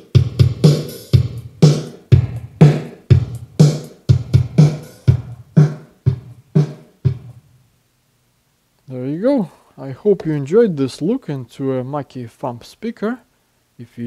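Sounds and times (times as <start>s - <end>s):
drum machine beat: 0.0s - 7.5s.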